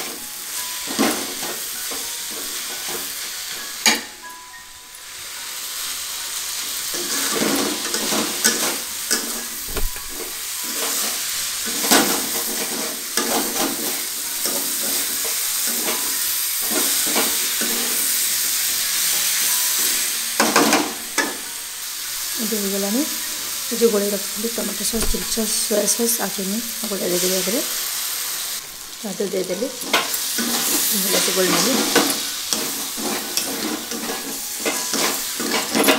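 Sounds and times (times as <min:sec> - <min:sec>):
vegetables sizzling in a pan: 0:00.0 - 0:35.9
metal spatula scraping a pan: 0:06.9 - 0:19.8, 0:29.5 - 0:35.9.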